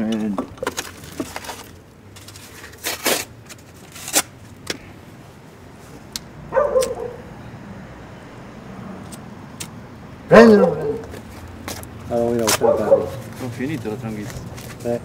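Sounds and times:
dog barking: 6.5s - 7.3s, 10.3s - 11.1s, 12.5s - 13.3s.

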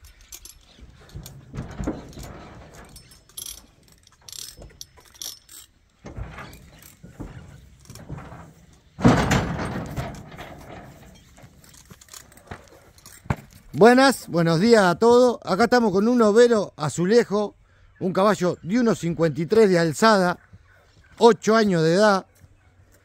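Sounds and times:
hooves on trailer floor: 0.0s - 15.2s
trailer rattling: 0.0s - 16.2s.

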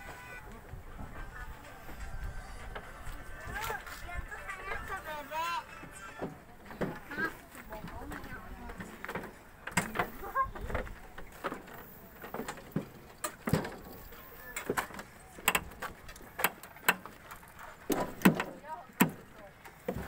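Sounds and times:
footsteps on metal stairs: 5.8s - 20.0s.

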